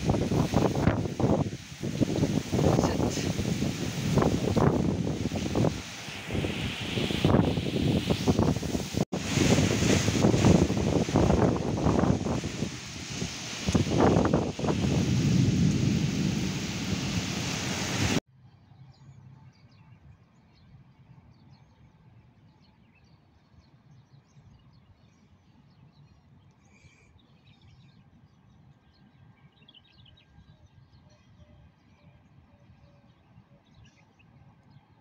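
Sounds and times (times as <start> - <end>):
wind and heavy rain: 0.0 - 18.2
wind buffeting microphone: 0.0 - 18.2.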